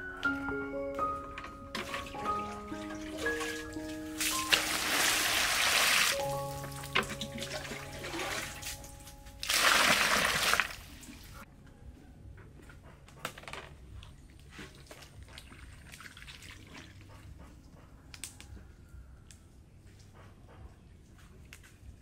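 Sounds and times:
water splashing into plastic basin: 1.7 - 11.3, 14.6 - 17.1.

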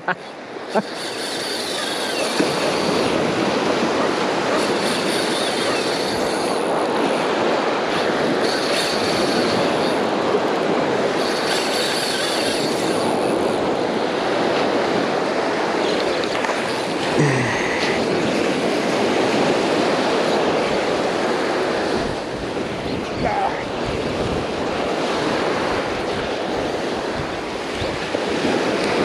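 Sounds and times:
wind: 0.0 - 29.0
fishing reel whirring: 0.1 - 15.0.

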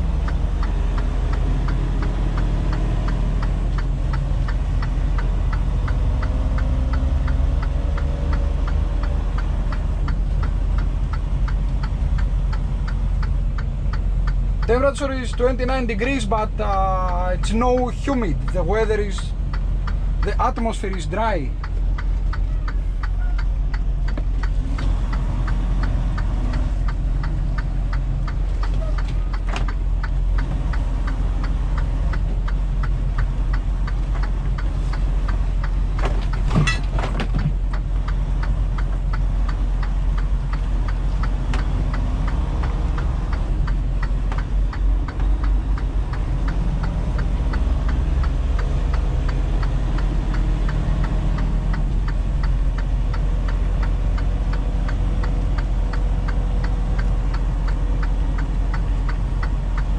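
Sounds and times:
diesel engine idling: 0.0 - 59.9
even ticking: 0.0 - 59.9.

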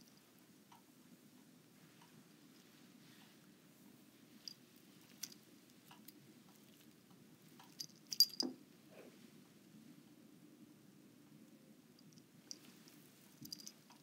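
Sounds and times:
cat collar bell jingling: 7.6 - 8.5, 12.5 - 13.9.

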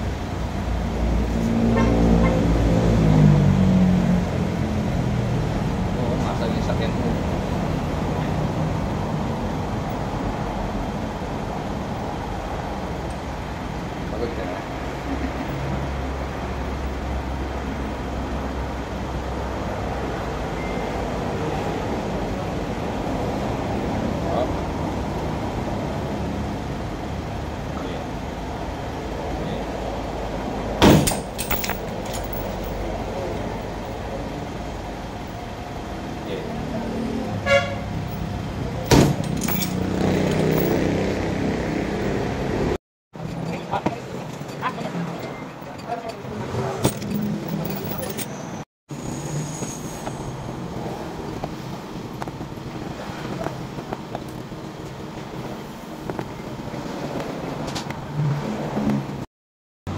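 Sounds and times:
steady background noise: 0.0 - 59.3
workshop background noise: 30.4 - 42.5, 43.2 - 59.3.

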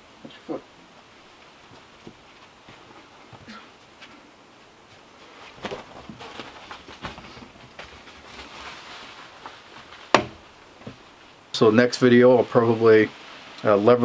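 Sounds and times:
wood knocking and scuffing: 9.3 - 11.1.

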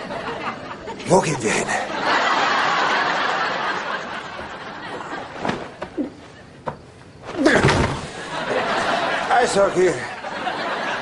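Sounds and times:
studio audience laughing: 0.0 - 1.0, 1.8 - 5.4, 8.2 - 11.0.

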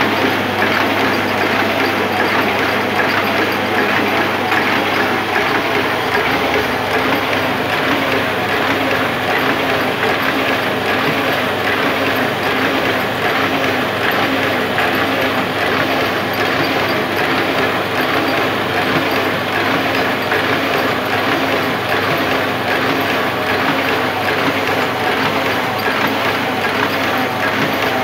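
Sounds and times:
printing press running: 0.0 - 28.0.

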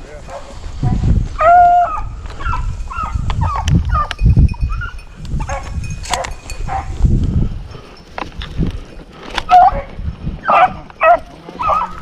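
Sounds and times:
beagles yelping bays: 1.4 - 4.1, 9.5 - 12.0.

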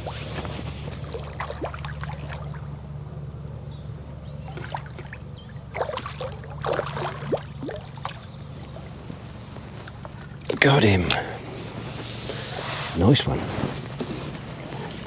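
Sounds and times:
fish splashing at surface: 0.0 - 2.7, 4.5 - 8.9.

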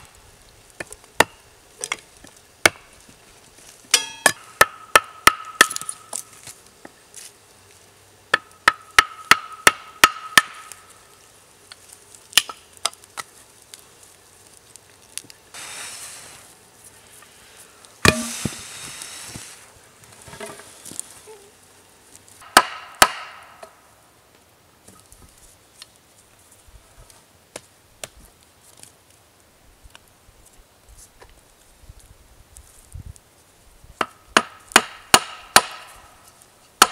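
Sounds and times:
hatchet chopping wood: 2.6 - 2.9, 3.9 - 6.2, 8.3 - 10.8, 18.0 - 18.6, 22.4 - 23.8, 34.0 - 36.0
rustling: 10.8 - 22.4.

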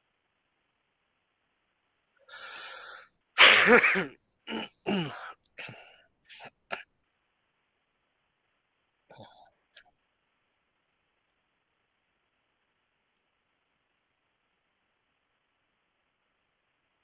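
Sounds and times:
breathy intake: 2.3 - 3.1, 4.5 - 6.5
bursts of breath: 2.3 - 3.1
man sneezing: 3.4 - 6.8.

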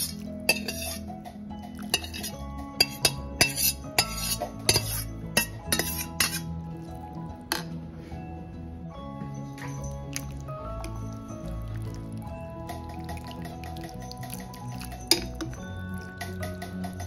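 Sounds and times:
metal utensil clinking on pan: 0.0 - 6.5, 12.7 - 17.0
background music: 0.0 - 17.0.

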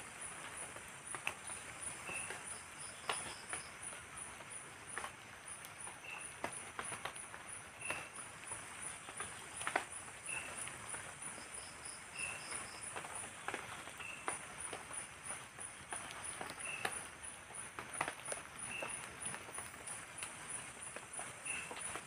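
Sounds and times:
drizzle on tarp and leaves: 0.0 - 22.0
insect high pulsing chirp: 1.4 - 4.0, 5.5 - 22.0
insect short chirp: 1.5 - 3.8, 10.2 - 13.0, 21.4 - 22.0.

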